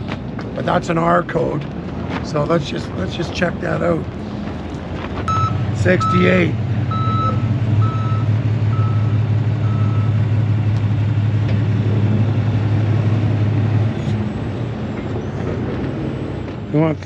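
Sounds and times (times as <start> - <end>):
reversing alarm beeping: 5.3 - 10.2.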